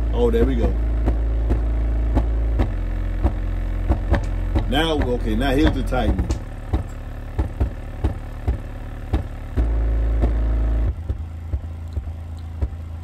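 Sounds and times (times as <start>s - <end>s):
subwoofer playing bass-heavy song: 0.0s - 13.0s
sharp clicks: 11.8s - 12.7s.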